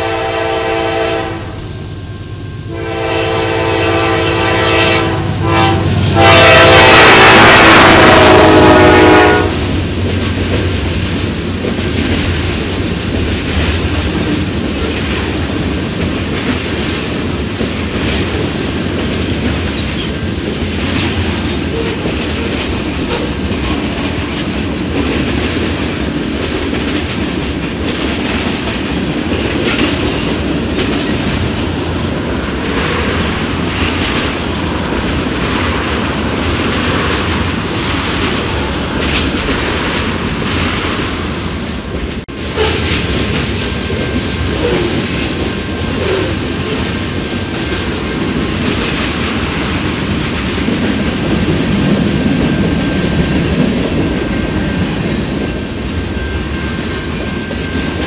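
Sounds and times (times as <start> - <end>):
locomotive horn: 0.0 - 1.7, 2.7 - 9.8, 42.5 - 43.0
freight train cars rumbling past: 0.0 - 58.0.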